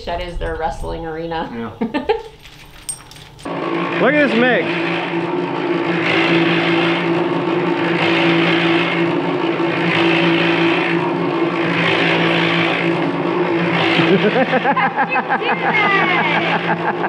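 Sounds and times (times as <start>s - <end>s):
cement mixer motor hum: 3.4s - 17.0s.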